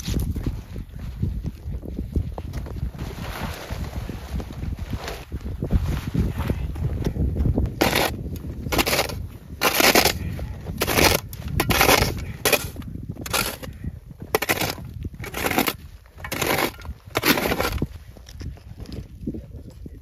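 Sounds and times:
low wind rumble: 0.0s - 20.0s
snow shovel scraping snow: 2.9s - 6.4s, 7.8s - 13.7s, 14.4s - 17.9s.

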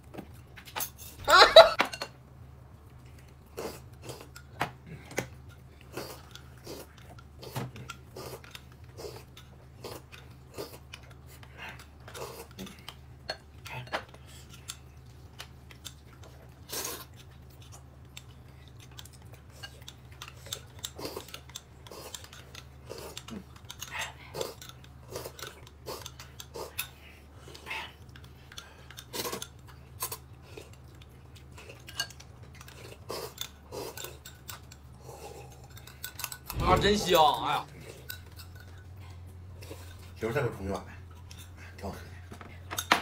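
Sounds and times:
low steady hum: 0.0s - 43.0s
cutlery and dishes clinking: 1.8s - 2.2s.

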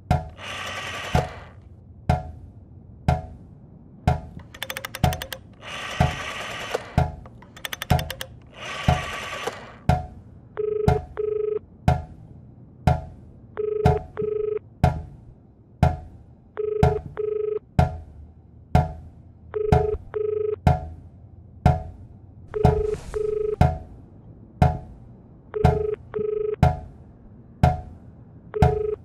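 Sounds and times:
telephone ringback tone: 10.6s - 11.6s, 13.6s - 14.6s, 16.6s - 17.6s, 19.6s - 20.6s, 22.5s - 23.7s, 25.6s - 26.6s, 28.6s - 29.0s.

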